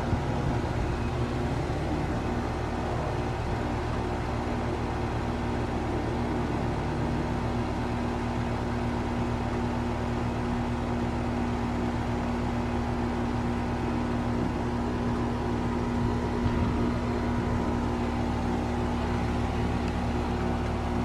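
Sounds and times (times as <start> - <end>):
heat pump unit humming: 0.0 - 21.0.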